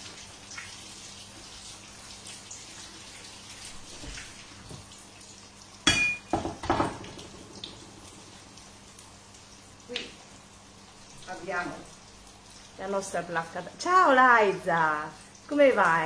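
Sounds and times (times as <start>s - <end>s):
faint crackle of frying: 0.0s - 16.0s
kitchenware clinking: 5.8s - 7.2s
dishes knocking on counter: 5.9s - 7.2s.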